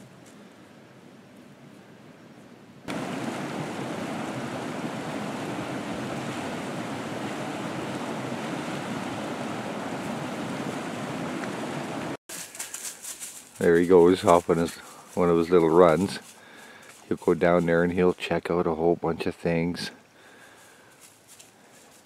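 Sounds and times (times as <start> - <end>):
creek rushing over rapids: 2.9 - 12.2.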